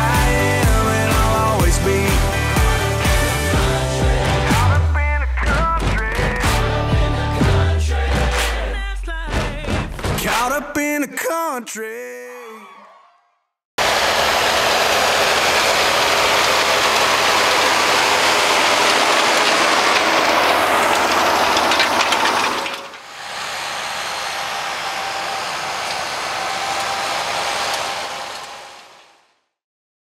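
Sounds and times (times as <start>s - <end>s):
tractor engine and implement noise: 0.0s - 4.7s, 13.8s - 29.0s.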